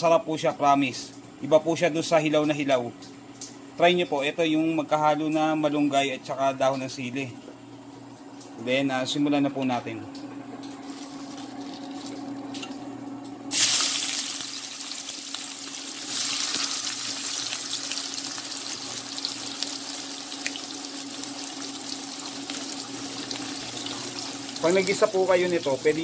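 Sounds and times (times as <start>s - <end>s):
low steady hum: 0.0s - 26.0s
food sizzling in hot oil: 10.8s - 12.4s, 13.5s - 26.0s.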